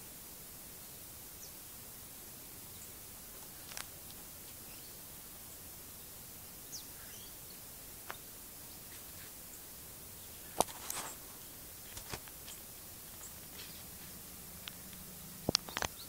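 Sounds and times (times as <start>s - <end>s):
outdoor background hiss: 0.0s - 16.0s
distant bird chirps: 2.6s - 16.0s
sharp clicks and snaps: 3.6s - 4.2s, 14.6s - 16.0s.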